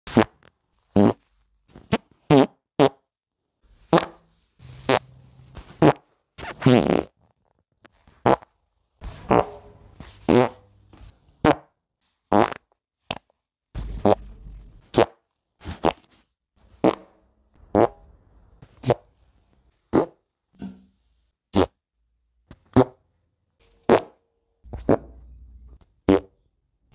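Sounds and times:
wet fart sounds: 0.1 - 3.1, 3.9 - 8.5, 9.1 - 10.7, 11.4 - 18.0, 19.9 - 20.2, 21.5 - 21.8, 22.6 - 23.0, 23.8 - 25.3, 26.0 - 26.4.

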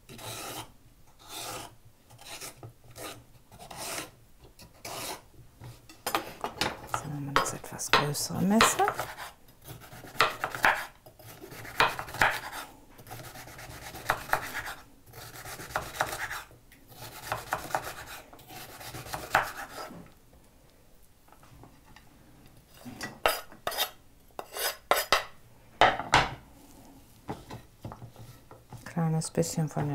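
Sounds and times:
knife scraping board: 0.1 - 6.3, 6.9 - 20.1, 22.8 - 25.3
knife chopping on wooden board: 7.4 - 12.6, 13.2 - 14.8, 15.4 - 16.4, 17.0 - 18.2, 18.9 - 19.9.

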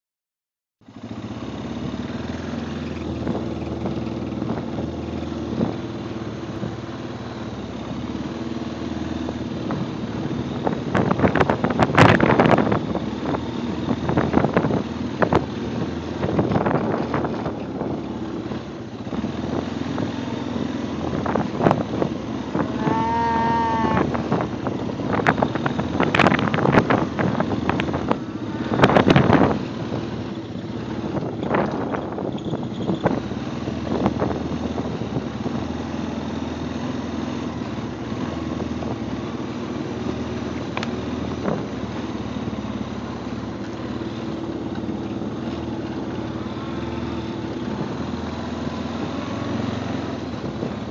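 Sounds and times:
vehicle engine idling: 0.8 - 49.1
person calling to cattle: 22.7 - 24.2.

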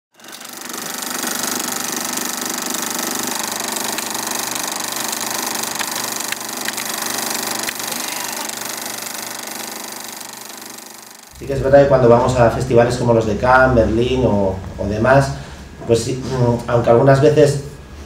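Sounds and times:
film projector clattering: 0.1 - 11.4
sharp projector clicks: 0.2 - 11.3.

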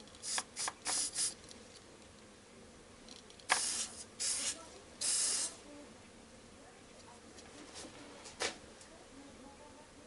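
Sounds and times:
soldering iron sizzling in flux: 0.2 - 1.4, 3.5 - 5.6.

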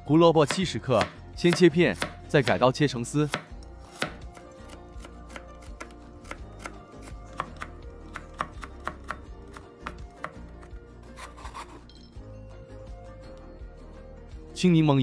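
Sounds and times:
cleaver tapping cutting board: 0.5 - 2.6, 3.3 - 4.2
blade scraping board: 11.0 - 11.9.

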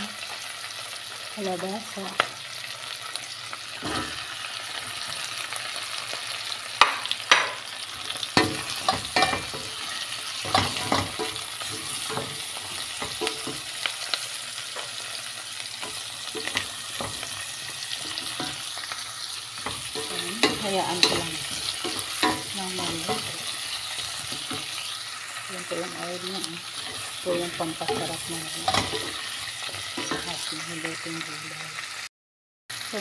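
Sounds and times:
food sizzling in a metal pot: 0.0 - 32.1, 32.7 - 33.0
sharp knocks against a pot: 6.8 - 7.6.

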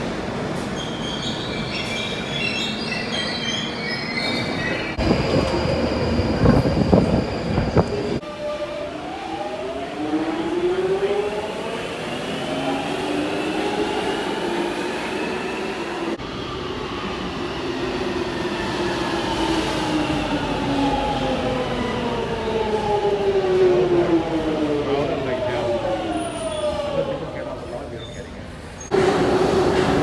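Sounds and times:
train rumble: 16.1 - 30.0.

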